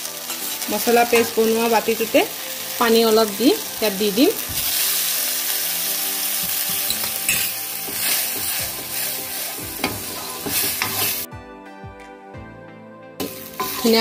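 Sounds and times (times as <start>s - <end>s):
food sizzling in hot oil: 0.0s - 11.3s, 13.2s - 14.0s
steel spoon scraping pan: 6.8s - 11.3s, 13.6s - 14.0s.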